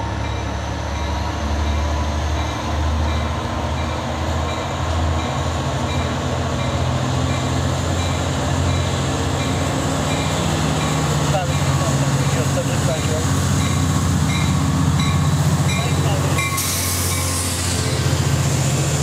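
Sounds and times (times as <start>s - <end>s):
diesel locomotive engine idling: 0.0s - 19.0s.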